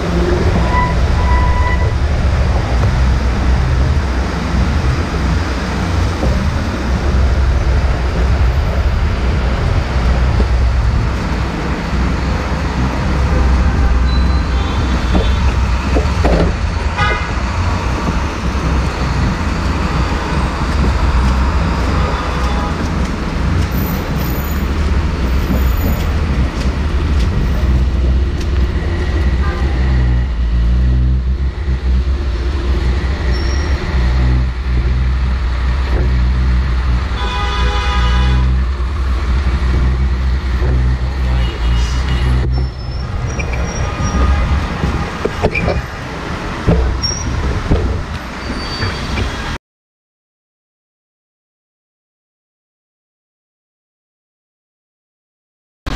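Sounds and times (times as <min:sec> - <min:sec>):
heavy traffic rumble: 0:00.0 - 0:49.6
car horns tooting: 0:13.3 - 0:16.2, 0:16.9 - 0:17.4, 0:36.9 - 0:38.7, 0:40.6 - 0:46.1.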